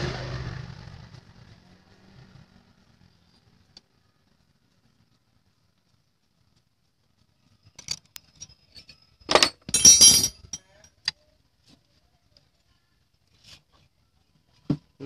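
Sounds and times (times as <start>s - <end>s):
metal tools clinking and rattling: 7.7s - 11.1s.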